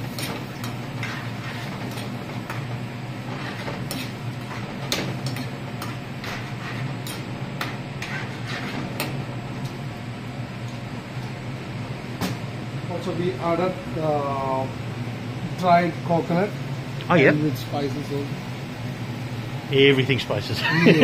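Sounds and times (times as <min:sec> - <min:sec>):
steady low hum: 0:00.0 - 0:21.0
metal spoon scraping a pan: 0:00.2 - 0:02.6, 0:03.2 - 0:09.1.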